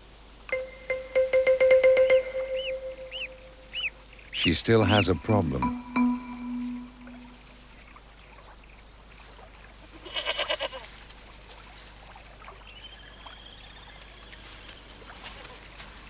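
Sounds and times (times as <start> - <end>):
goat bleating: 9.9 - 10.8.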